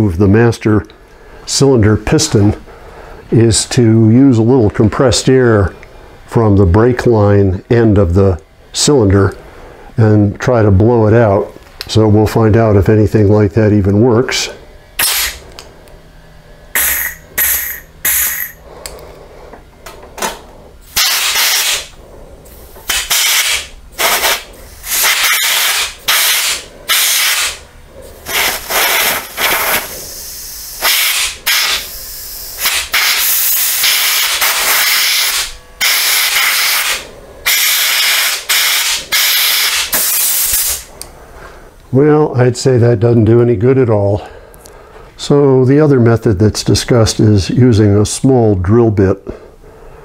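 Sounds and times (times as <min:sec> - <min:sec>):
compressed air blow gun hissing: 0:20.9 - 0:41.0.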